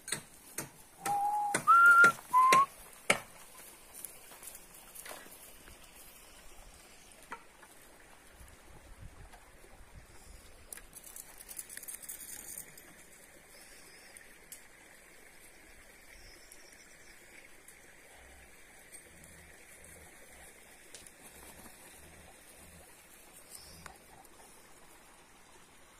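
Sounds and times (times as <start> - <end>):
faint steady hiss: 0.0 - 25.9
soft rustles and clicks: 10.6 - 13.0.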